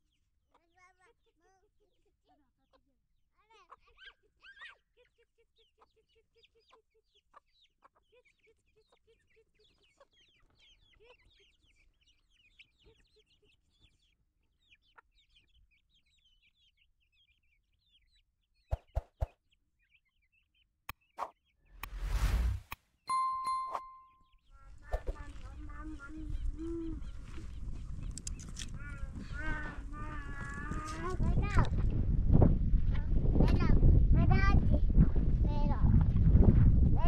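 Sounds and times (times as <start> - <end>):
chickens clucking: 0.1 - 20.0, 24.6 - 31.8
faint high chirps: 22.0 - 25.1.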